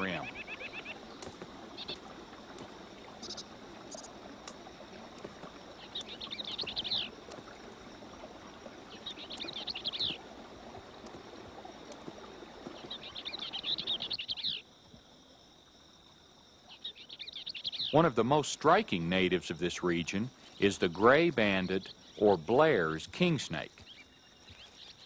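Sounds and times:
swallow twittering: 0.0 - 2.3, 3.0 - 7.3, 8.8 - 10.3, 12.7 - 14.6, 16.7 - 18.2
steady outdoor hiss: 0.0 - 25.0.

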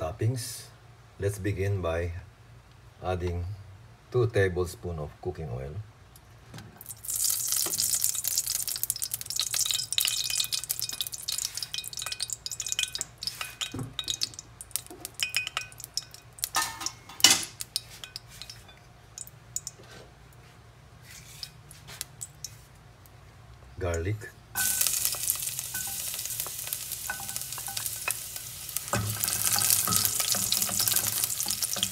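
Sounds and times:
oil crackling and spitting: 6.8 - 16.7, 17.5 - 19.8, 24.6 - 31.9.

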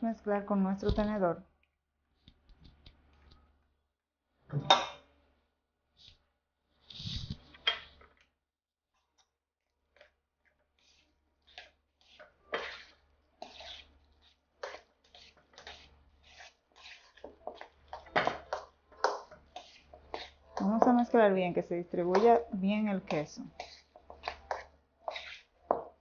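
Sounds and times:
mash squishing: 10.8 - 21.1, 23.1 - 26.0
fork scraping metal bowl: 10.8 - 21.2, 22.0 - 26.0.

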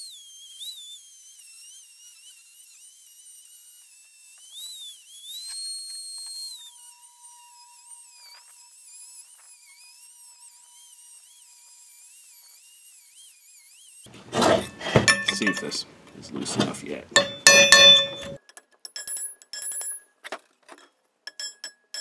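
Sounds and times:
rotary tool grinding metal: 14.1 - 18.4.

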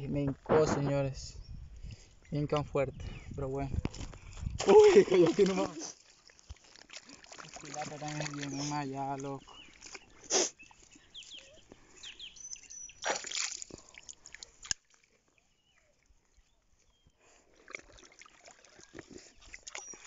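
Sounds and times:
water dripping: 3.8 - 15.1, 17.6 - 20.0
water splashing: 3.9 - 15.3, 17.2 - 20.0.

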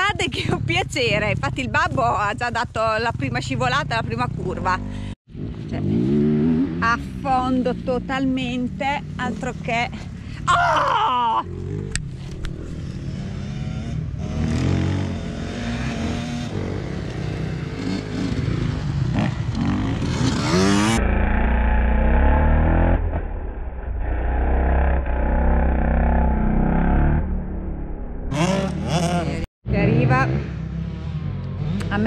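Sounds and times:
motocross bikes revving: 2.5 - 10.4, 11.4 - 23.1, 28.3 - 32.0
steady low rumble: 21.0 - 28.4.

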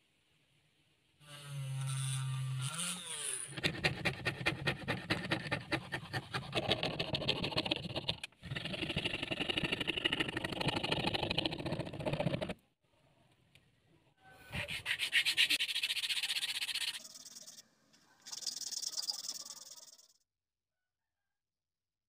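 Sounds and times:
fret saw cutting plastic sheet: 1.2 - 12.6, 14.5 - 17.1.

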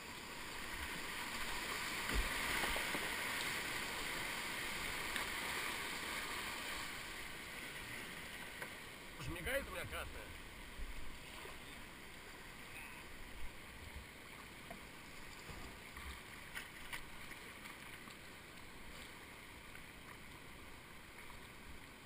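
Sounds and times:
paddle strokes in water: 0.7 - 9.9, 13.8 - 22.0.

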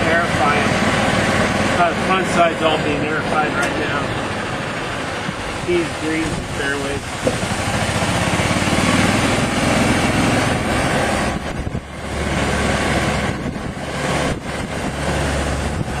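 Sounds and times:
loud rushing noise: 0.0 - 16.0
small petrol engine running: 7.4 - 16.0.

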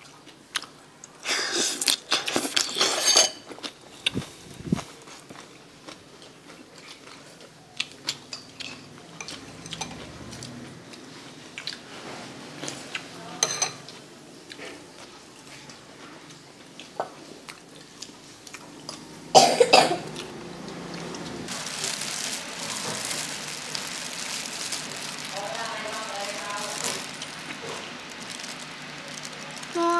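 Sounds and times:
person coughing: 19.3 - 20.2.

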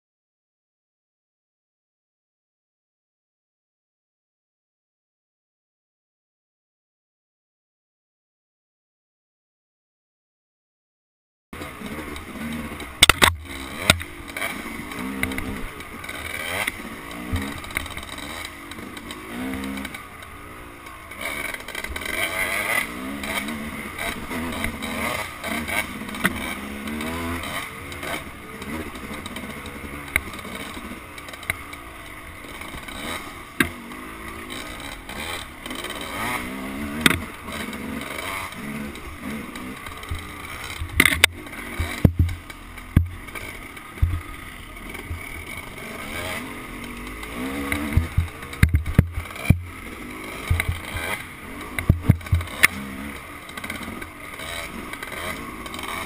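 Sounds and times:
dirt bike engine revving: 11.6 - 56.0
sharp knocks and clatter: 12.8 - 20.0, 36.8 - 38.5, 39.8 - 44.3, 46.2 - 52.9.

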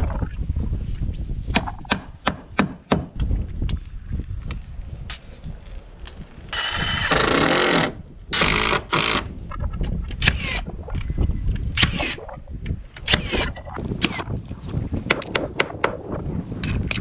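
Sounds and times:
cordless drill driving screws: 6.6 - 9.3.

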